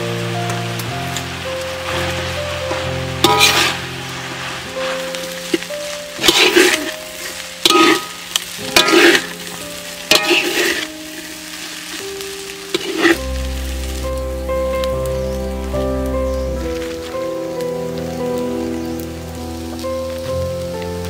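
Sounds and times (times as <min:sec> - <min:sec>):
background music: 0:00.0 - 0:21.0
food sizzling: 0:00.0 - 0:21.0
metal spatula scraping pan: 0:01.9 - 0:11.0, 0:12.7 - 0:13.2.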